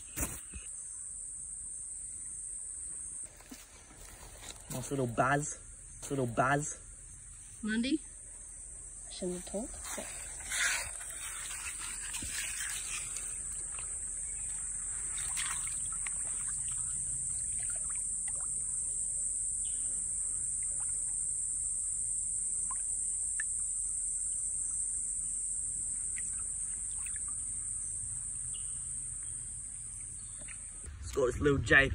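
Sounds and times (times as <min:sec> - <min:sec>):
high-pitched insect buzz: 0:00.0 - 0:30.9
shallow water splashing: 0:10.0 - 0:18.9, 0:25.9 - 0:27.8.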